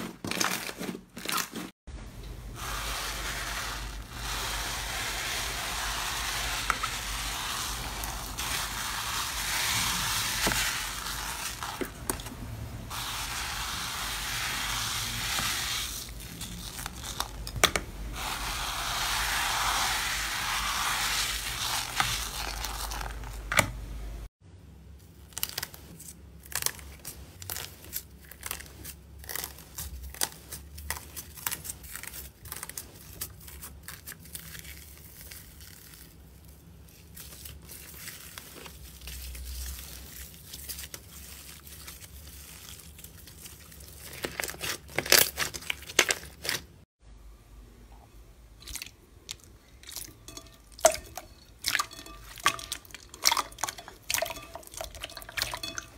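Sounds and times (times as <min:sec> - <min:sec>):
slime crackling and crinkling: 0:00.0 - 0:01.8, 0:02.5 - 0:23.6, 0:25.0 - 0:46.8
slime being stirred: 0:02.4 - 0:23.7, 0:25.0 - 0:46.8, 0:48.6 - 0:55.9.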